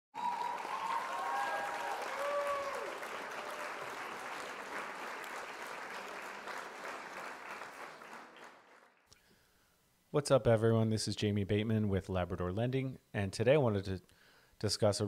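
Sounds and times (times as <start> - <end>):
whistles and cheers: 0.2 - 4.5
crowd applause: 0.2 - 9.1.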